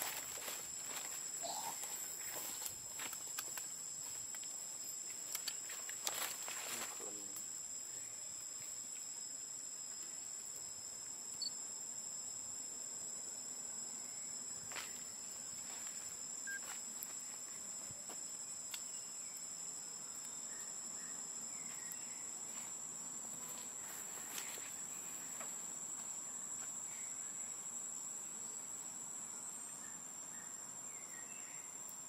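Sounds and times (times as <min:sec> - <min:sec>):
forest insects droning: 0:00.0 - 0:32.0.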